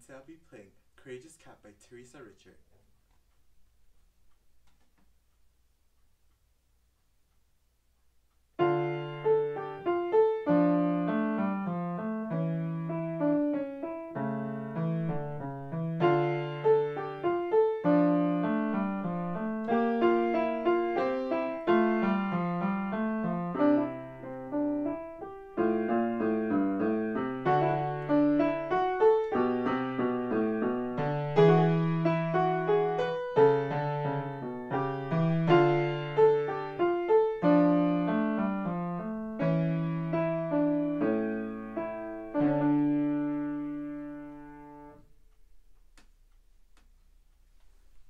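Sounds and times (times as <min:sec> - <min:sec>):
solo piano piece: 0:08.6 - 0:45.1.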